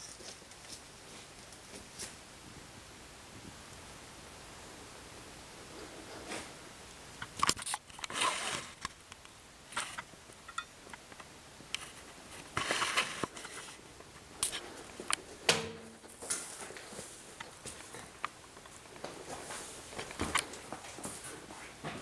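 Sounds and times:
objects brushed and shifted: 8.0s - 8.8s, 11.8s - 13.8s.

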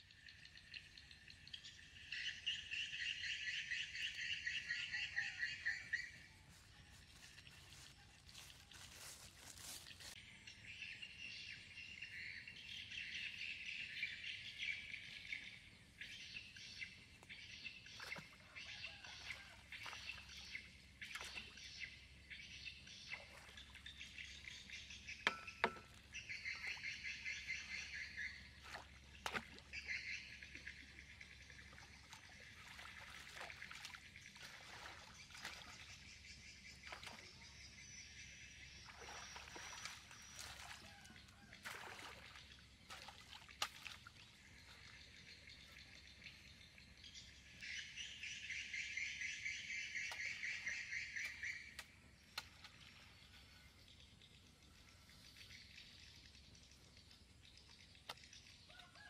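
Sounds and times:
birds and insects chirping: 0.0s - 59.0s.

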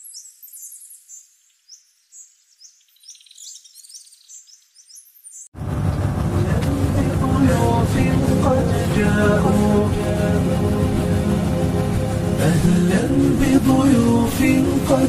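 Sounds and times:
birds chirping: 0.0s - 9.2s
loud music: 5.6s - 15.0s.

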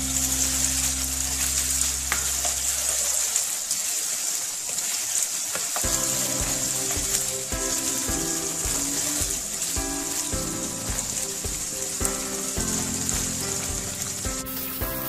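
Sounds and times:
chicken sizzling in oil: 0.0s - 15.0s
background music with beat: 5.8s - 15.0s.

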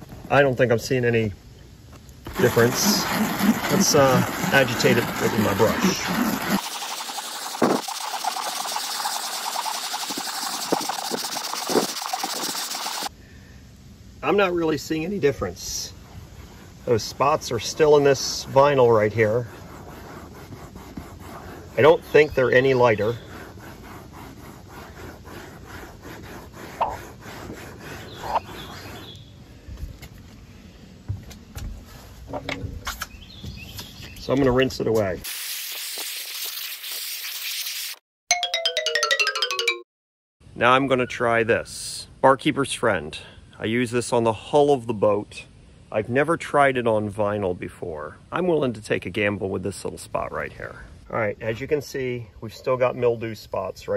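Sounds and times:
scrub brush scrubbing vinyl: 2.3s - 13.1s, 16.5s - 29.2s.

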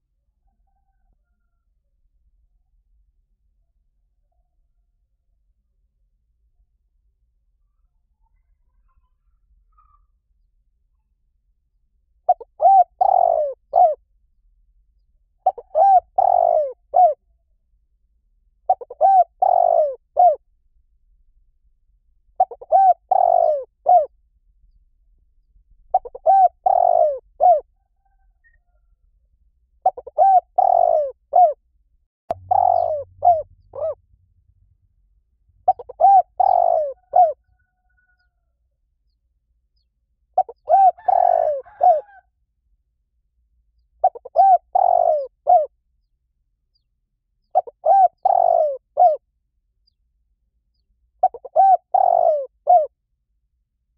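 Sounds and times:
dove cooing: 12.3s - 14.0s, 15.4s - 17.2s, 18.7s - 20.4s, 22.4s - 24.1s, 25.9s - 28.6s, 29.8s - 31.6s, 32.3s - 34.0s, 35.6s - 38.3s, 40.4s - 42.2s, 44.0s - 45.7s, 47.5s - 49.2s, 51.2s - 52.9s.

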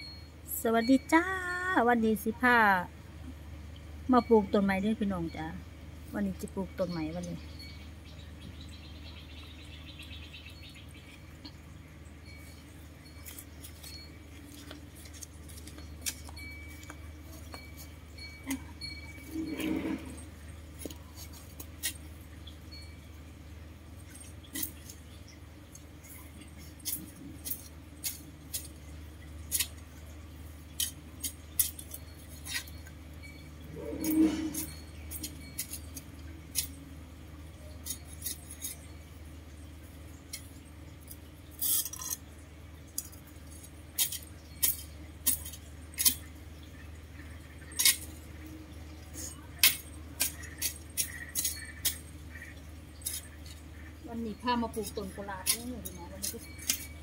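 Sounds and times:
steady low hum: 0.0s - 57.0s
digging tool clinking in soil: 12.2s - 22.1s, 26.1s - 36.9s, 49.2s - 57.0s.

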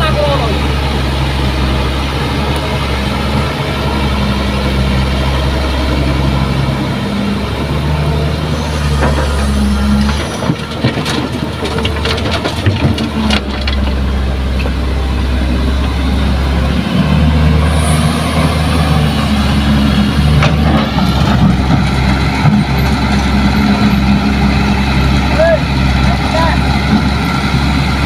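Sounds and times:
diesel engines running: 0.0s - 28.0s
soil and stones rattling into truck bed: 10.1s - 14.1s.

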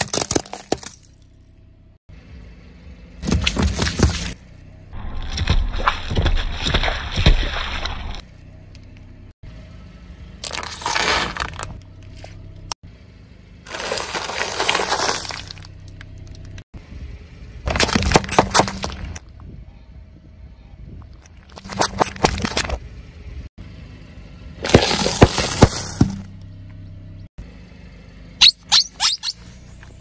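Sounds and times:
tyre crushing cartons: 3.2s - 4.4s, 10.4s - 11.7s, 13.7s - 15.7s, 17.7s - 19.2s, 21.6s - 22.8s, 24.6s - 26.3s
plastic cups splitting and splattering: 24.6s - 26.2s.

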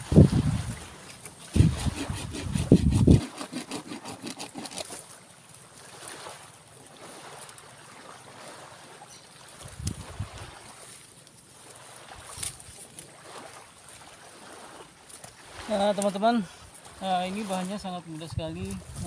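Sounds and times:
wind buffeting microphone: 0.0s - 3.3s, 9.6s - 10.6s, 18.2s - 19.0s
digging in sand: 0.8s - 5.2s.

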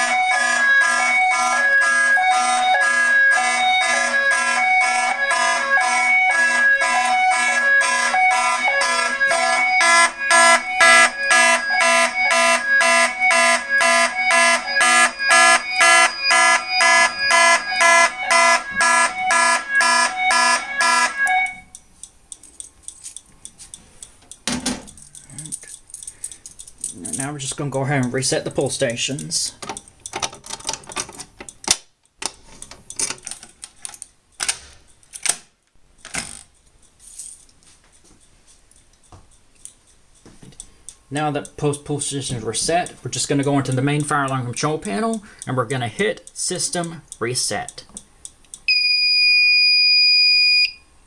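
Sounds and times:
alternating hi-lo alarm tone: 0.0s - 21.8s, 48.7s - 50.8s
fire alarm horns buzzing: 0.0s - 21.8s, 48.7s - 50.8s.

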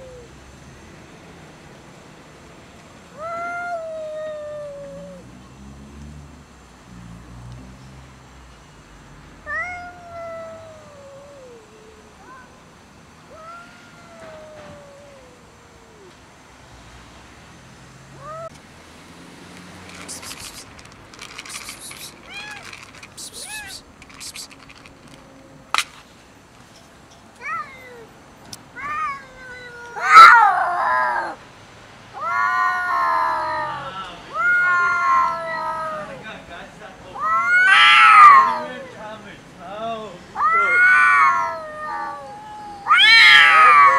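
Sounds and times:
cats yowling: 0.0s - 0.4s, 3.1s - 5.3s, 9.5s - 12.6s, 13.3s - 16.2s, 18.2s - 18.5s, 21.4s - 24.6s, 27.4s - 28.1s, 28.8s - 31.4s, 32.1s - 36.2s, 37.1s - 39.0s, 40.4s - 43.9s
short rising cat cry: 21.7s - 23.9s, 32.2s - 36.2s, 37.2s - 38.9s, 40.4s - 43.9s.

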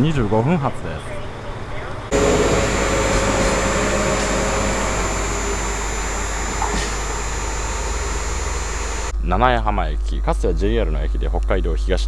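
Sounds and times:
diesel railcar engine running: 2.1s - 9.1s
high tone: 2.1s - 9.1s.

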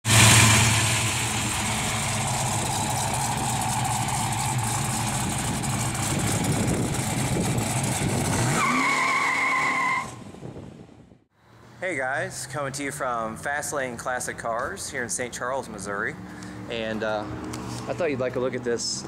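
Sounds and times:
car engine driving away: 0.0s - 10.7s
steady high whine: 0.1s - 8.0s.

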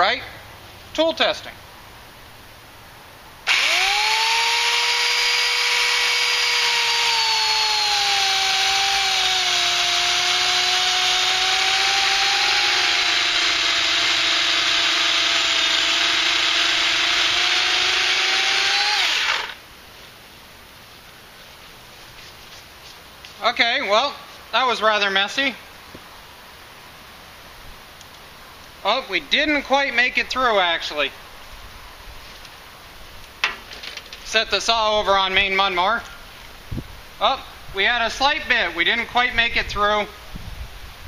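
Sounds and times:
electric chainsaw sawing wood: 3.4s - 19.6s.

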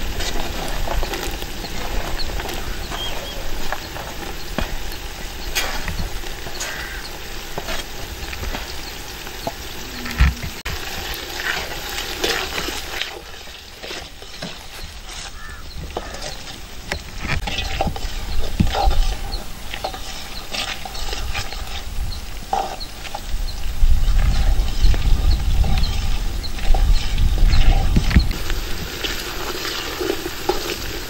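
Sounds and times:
shallots frying in oil: 0.0s - 31.0s
metal ladle scraping pot: 8.5s - 21.9s.

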